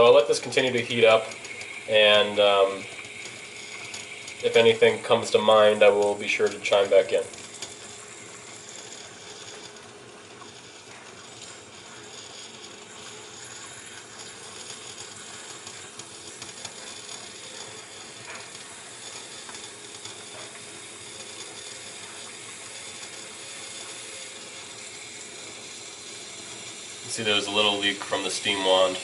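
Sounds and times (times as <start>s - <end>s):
espresso machine hissing: 0.0s - 29.0s.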